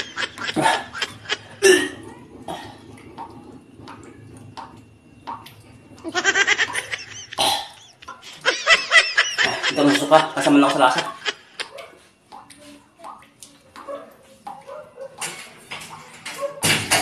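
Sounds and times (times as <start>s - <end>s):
man gagging and coughing: 0.4s - 2.0s, 9.5s - 11.2s
man retching: 0.4s - 2.8s, 6.7s - 8.3s
burst of laughter: 6.1s - 11.7s.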